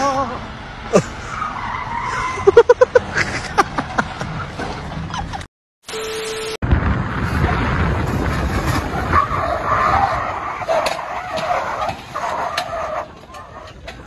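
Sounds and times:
truck engine straining: 0:00.0 - 0:14.0
test-tone beep: 0:05.9 - 0:06.6
tyre squeal: 0:09.1 - 0:14.0.

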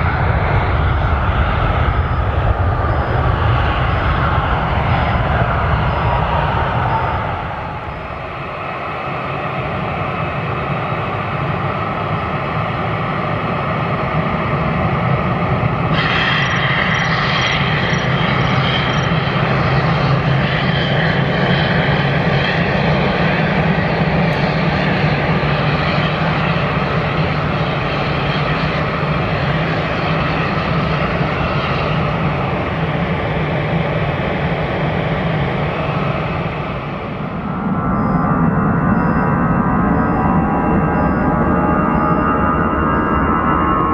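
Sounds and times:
high engine whine: 0:00.0 - 0:43.9
jet engines running: 0:00.0 - 0:43.9.

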